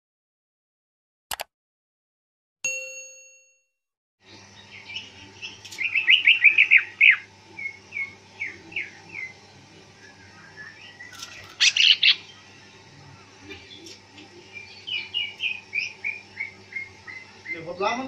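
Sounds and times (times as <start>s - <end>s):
bell-like ding: 2.6s - 3.7s
bird singing chirps: 4.3s - 18.0s.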